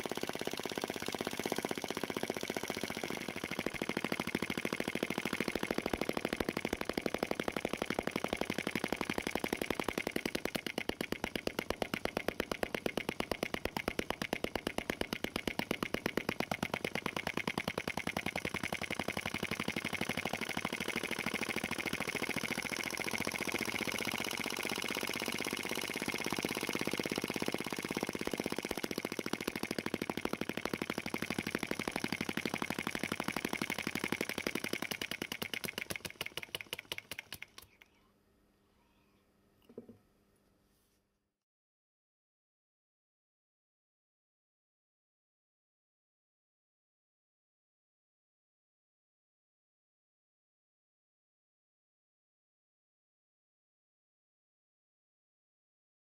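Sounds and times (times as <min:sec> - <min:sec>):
vacuum engine pops and valve clicks: 0:00.0 - 0:37.8.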